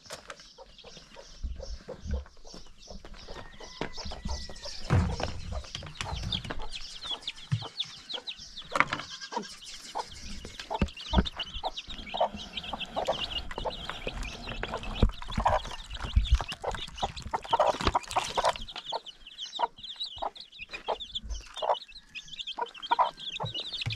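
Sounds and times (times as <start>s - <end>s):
chicks peeping: 0.0s - 23.9s
hen clucking: 0.4s - 23.9s.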